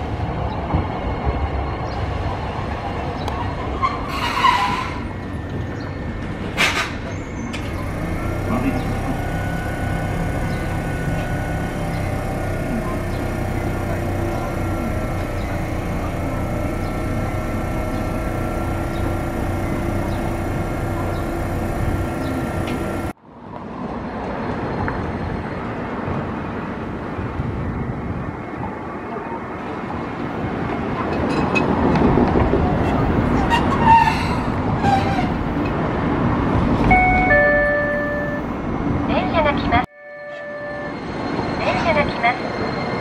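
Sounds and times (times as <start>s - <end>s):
tram humming at a stop: 0.0s - 43.0s
tram motor and wheels on rail: 0.0s - 43.0s
high wheel squeals: 3.6s - 6.2s, 6.8s - 23.2s, 32.8s - 35.7s.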